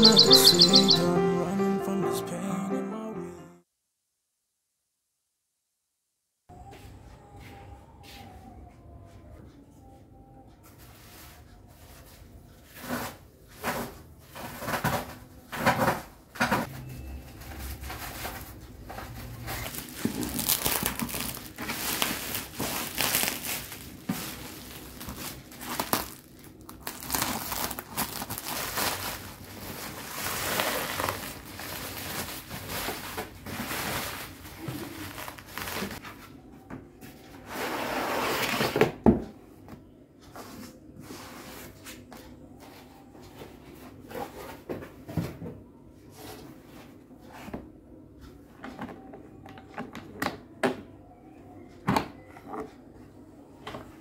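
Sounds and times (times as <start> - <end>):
plastic and bubble wrap crinkling: 17.3 - 36.1.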